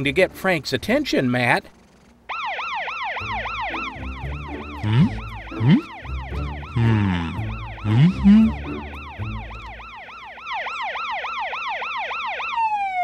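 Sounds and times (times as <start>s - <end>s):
cartoon police siren wailing: 2.3s - 13.0s
music: 3.2s - 10.0s.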